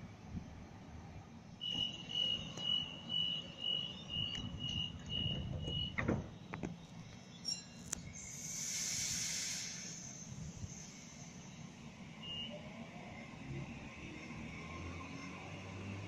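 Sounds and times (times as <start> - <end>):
high warning beeps: 1.6 - 6.0
train doors shutting with thud: 1.6 - 7.0
hiss: 8.2 - 11.8.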